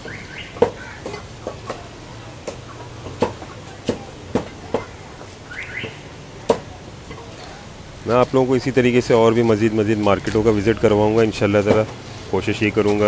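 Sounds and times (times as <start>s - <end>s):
cleaver chopping on wooden block: 2.4s - 4.9s.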